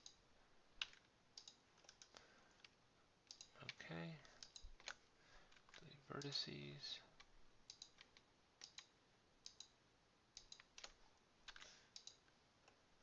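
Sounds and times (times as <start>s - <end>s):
mouse and keyboard clicks: 0.8s - 6.4s, 7.7s - 9.8s, 10.4s - 12.8s.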